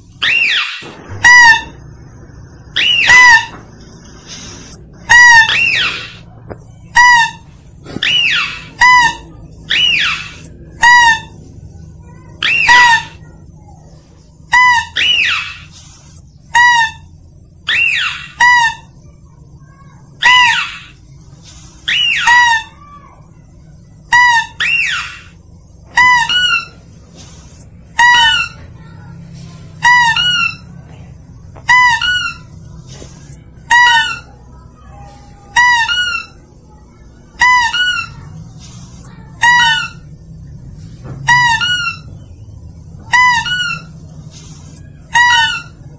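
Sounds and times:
high squeaky animal lure call: 0.1 - 2.0, 2.6 - 11.5, 12.1 - 13.6, 14.5 - 15.7, 16.5 - 19.0, 20.2 - 21.0, 21.8 - 23.2, 24.1 - 26.9, 27.9 - 29.0, 29.8 - 30.8, 31.6 - 32.6, 33.3 - 40.3, 41.3 - 45.9.

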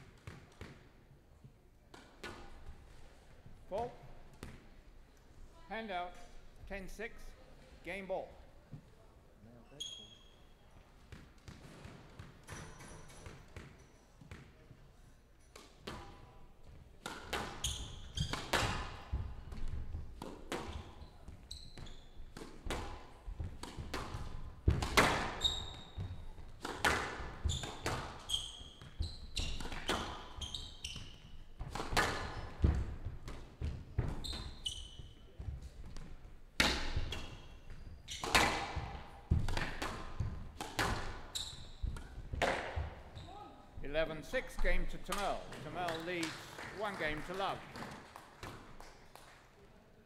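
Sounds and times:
shoes squeaking on court floor: 9.5 - 14.8, 15.4 - 46.3
squash ball smacks: 18.2 - 20.8, 22.3 - 25.4, 26.0 - 28.2, 31.6 - 34.3, 35.4 - 37.3, 38.2 - 42.9.

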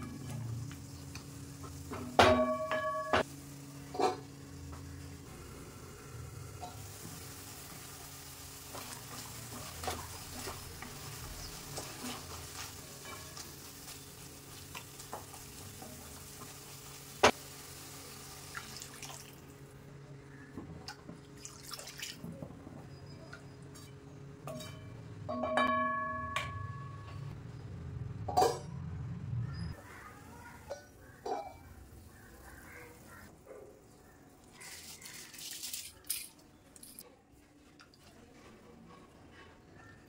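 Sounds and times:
vegetables sizzling in a pan: 0.0 - 19.7.

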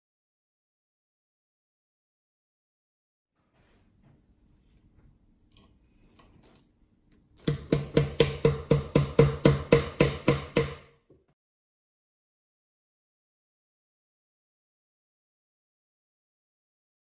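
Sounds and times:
hammer tapping nail into wood: 7.4 - 10.9.

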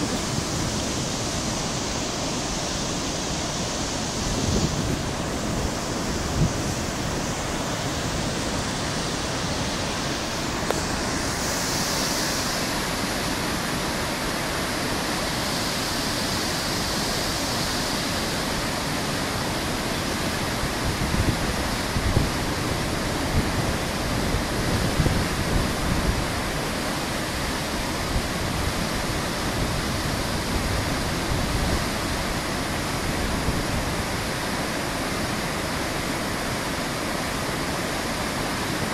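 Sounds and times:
water rushing down spillway: 0.0 - 38.9.

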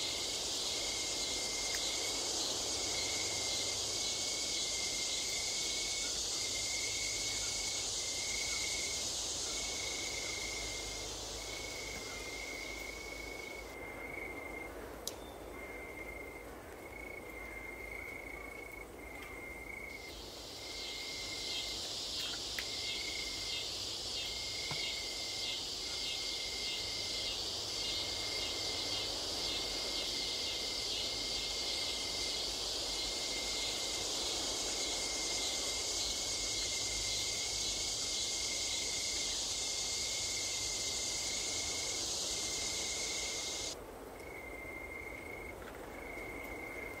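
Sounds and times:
insects buzzing shrilly: 20.0 - 43.8.

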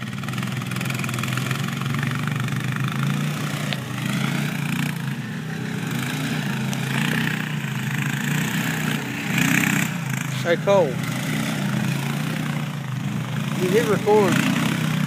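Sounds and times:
atv engines running under load: 0.0 - 15.0.

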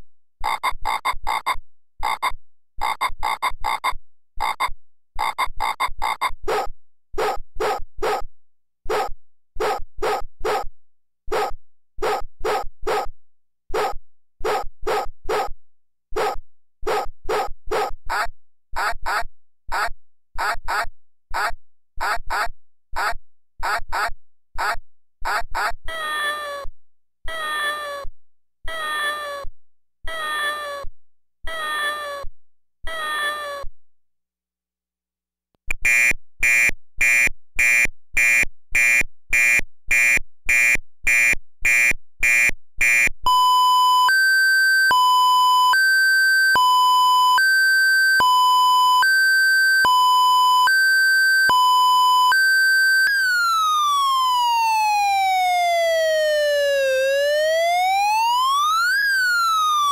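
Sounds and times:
electronic buzzer beeping: 0.4 - 6.3, 35.7 - 53.2
two-tone siren: 18.1 - 26.0, 35.8 - 59.9
synthesized cat meowing: 25.9 - 26.7, 27.3 - 28.1, 28.7 - 29.5, 30.1 - 30.9, 31.5 - 33.7
falling fire siren: 43.4 - 59.9.

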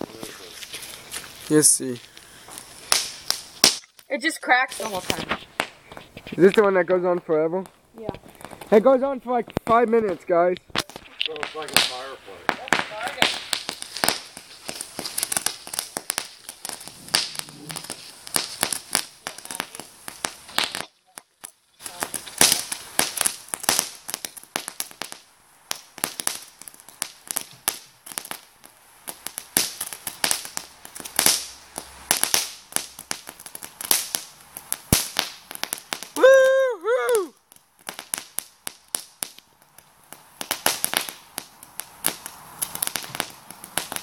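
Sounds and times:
firework fountain crackling: 0.0 - 44.0.

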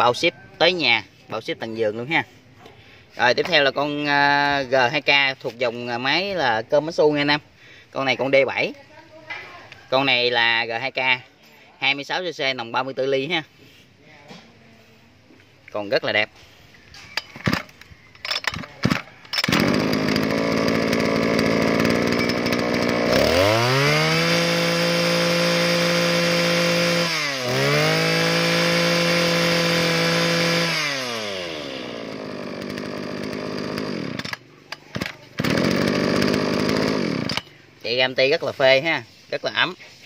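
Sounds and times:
recoil starter tugs: 17.1 - 37.7
brush cutter engine revving: 17.2 - 38.4.

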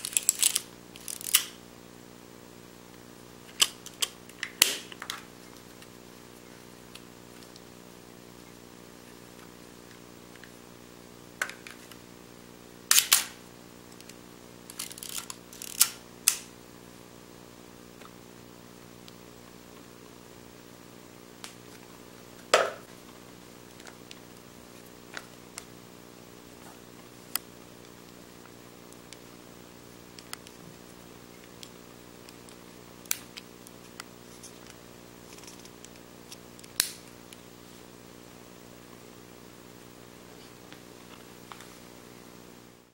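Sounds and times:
low steady hum: 0.0 - 42.9
camera wind mechanism clicks: 14.7 - 15.9.

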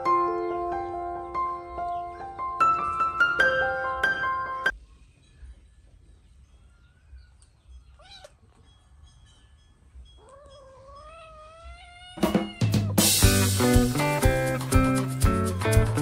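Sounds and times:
music: 0.0 - 6.0, 12.2 - 16.0
baby monkey crying: 10.2 - 13.1.

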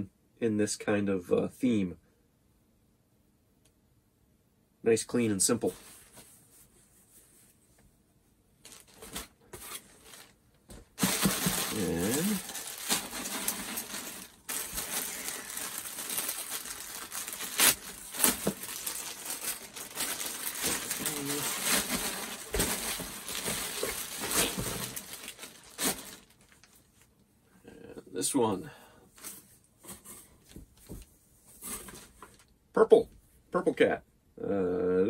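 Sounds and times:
plastic bags crinkling: 8.6 - 27.0.

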